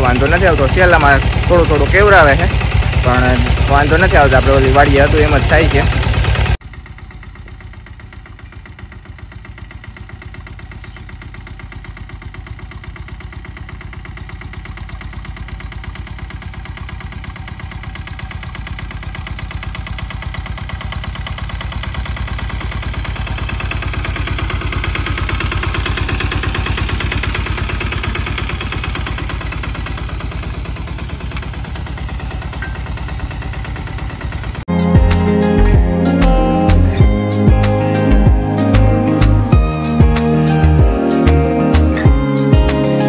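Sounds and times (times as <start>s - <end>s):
tractor engine running: 0.0s - 43.0s.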